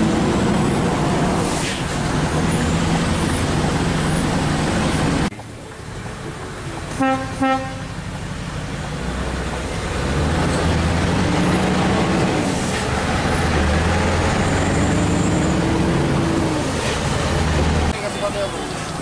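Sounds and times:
diesel truck engine drone: 0.0 - 19.0
horn toots: 7.0 - 7.9.

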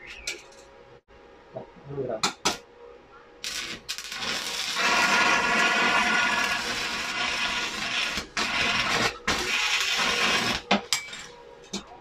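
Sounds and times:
welding arc crackling and hissing: 3.4 - 10.7.

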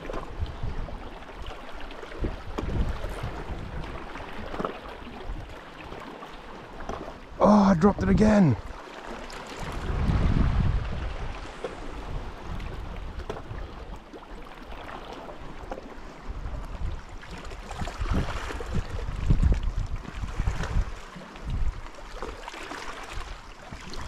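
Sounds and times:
small waves washing against rocks: 0.0 - 7.4, 8.1 - 24.0
wind buffeting microphone: 2.2 - 4.3, 9.6 - 14.0, 16.2 - 21.9.

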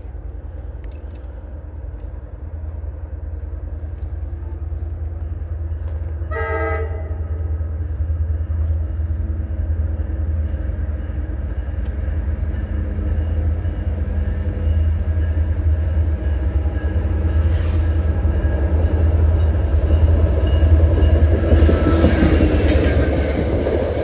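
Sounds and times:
diesel locomotive rumble: 0.0 - 24.0
train horn blast: 6.2 - 7.5.

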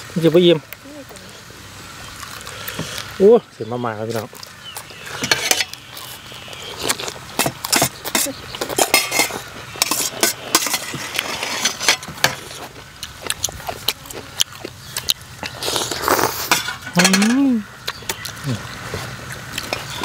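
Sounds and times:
noodles slurped and chewed: 2.0 - 3.2, 4.0 - 16.6
cutlery clinking on steel plate: 5.2 - 5.8, 7.4 - 12.4, 16.5 - 17.4.

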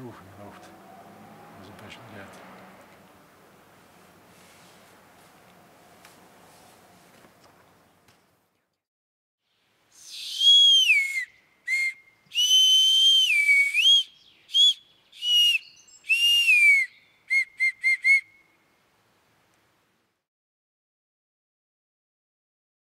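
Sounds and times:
bark whistle high notes: 10.1 - 18.4.

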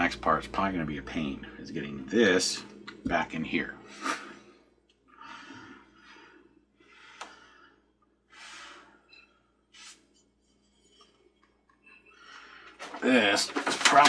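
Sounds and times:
faint breathing: 3.8 - 13.0.

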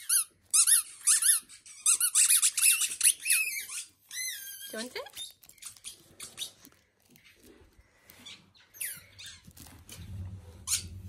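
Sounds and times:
dog toy squeak: 0.0 - 6.5.

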